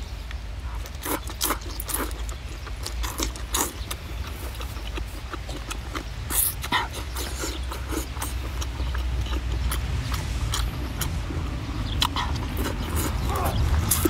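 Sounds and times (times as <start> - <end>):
wet chewing smacks and clicks: 0.3 - 14.0
low rumble: 8.4 - 14.0.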